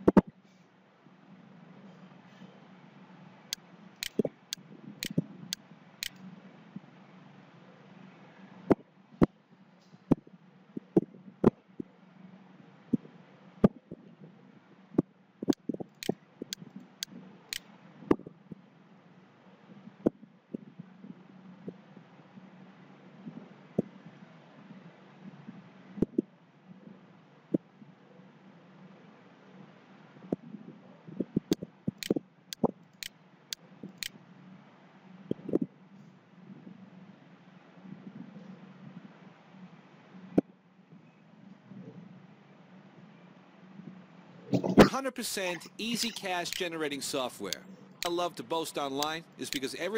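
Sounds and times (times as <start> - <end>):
low steady hum: 10.4 - 49.9.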